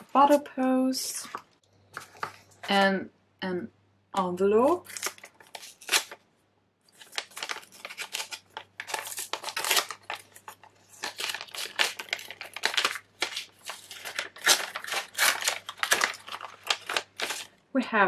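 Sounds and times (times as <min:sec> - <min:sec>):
paper envelope tearing and crinkling: 0:04.6 - 0:06.2, 0:06.9 - 0:17.5.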